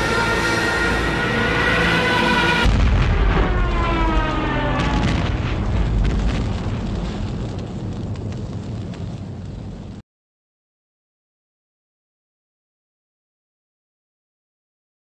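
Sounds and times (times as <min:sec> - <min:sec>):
dive bomber siren wailing: 0:00.0 - 0:05.6
bomb explosions: 0:00.0 - 0:10.0.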